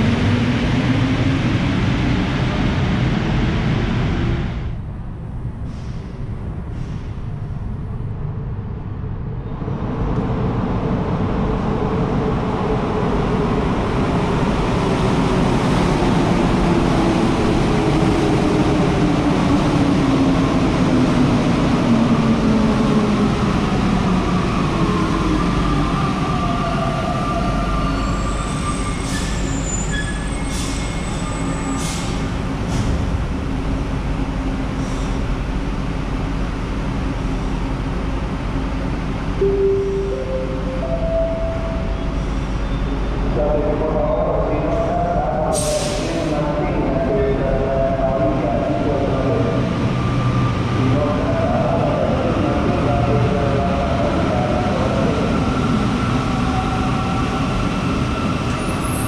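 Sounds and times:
metro train running: 0.0s - 59.0s
high steady tones: 39.4s - 42.4s.

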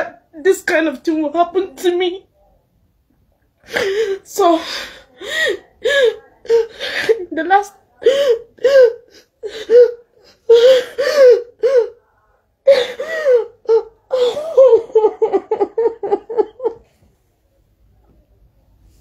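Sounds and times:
woman sobbing: 3.6s - 16.8s.

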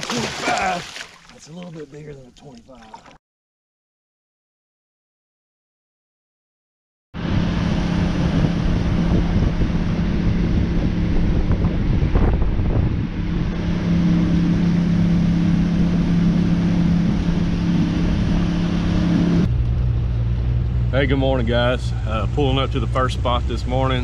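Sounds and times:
wind rumbling on microphone: 7.2s - 21.0s
boat motor running: 7.2s - 24.0s.

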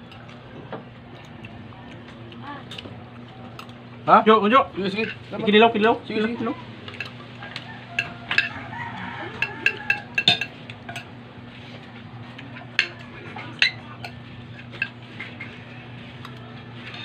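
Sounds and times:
steady low hum: 0.0s - 17.0s
spoons clinking on plates: 4.9s - 5.3s, 6.1s - 11.2s, 12.4s - 17.0s.

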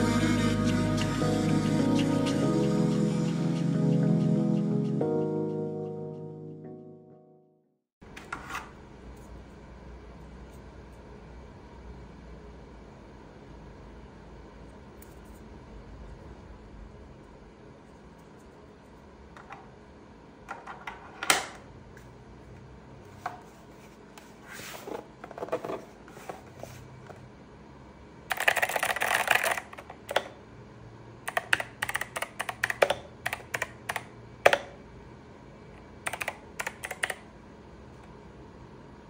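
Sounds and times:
mechanical keyboard typing: 28.3s - 30.4s, 31.3s - 34.7s, 36.0s - 37.3s.

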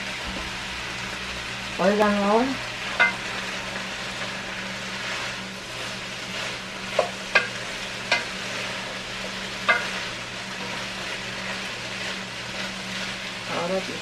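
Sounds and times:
ham and potatoes sizzling in a pot: 0.0s - 14.0s
spatula knocking against a pot: 7.0s - 8.3s.

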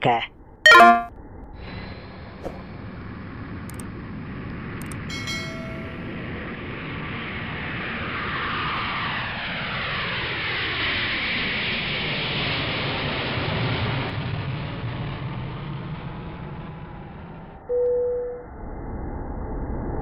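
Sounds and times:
short chime: 0.7s - 1.1s, 5.1s - 6.0s
jet engine roar: 3.0s - 17.6s
jet engine whine falling in pitch: 4.8s - 20.0s.

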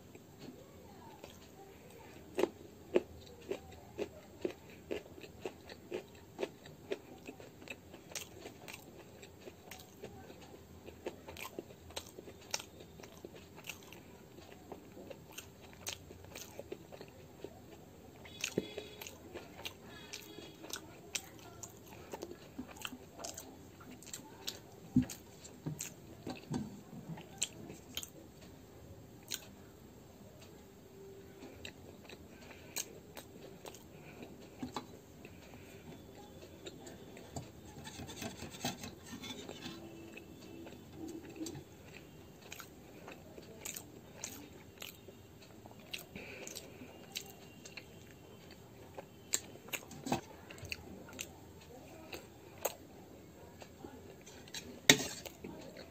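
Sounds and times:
close-up chewing with mouth clicks: 0.1s - 28.5s, 29.2s - 29.6s, 31.4s - 55.9s.

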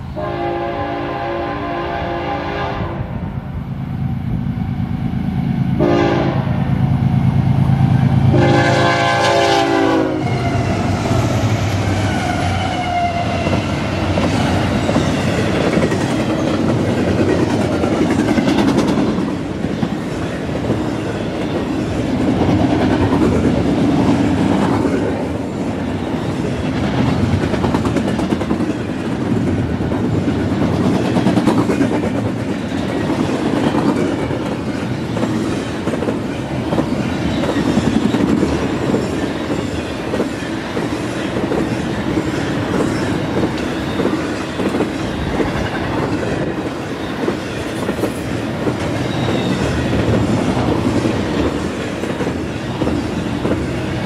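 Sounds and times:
locomotive air horn blasts: 0.2s - 3.1s, 5.8s - 6.6s, 8.3s - 10.6s
train wheels clickety-clack: 7.7s - 54.0s.

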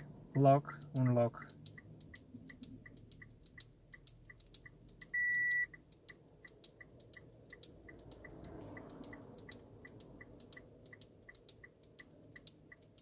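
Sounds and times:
hazard indicator ticking: 0.0s - 13.0s
electronic beep: 5.1s - 5.7s.

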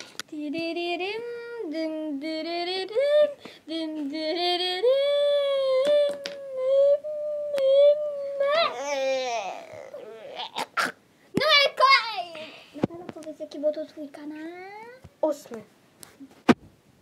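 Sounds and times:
child singing: 0.3s - 8.9s.

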